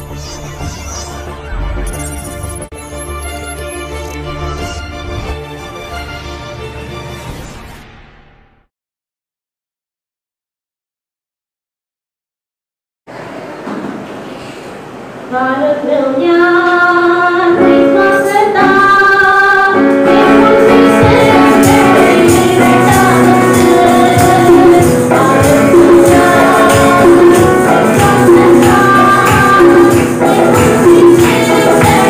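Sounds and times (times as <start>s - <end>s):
woman singing into a microphone: 15.3s - 32.0s
steady percussion beat: 20.8s - 32.0s.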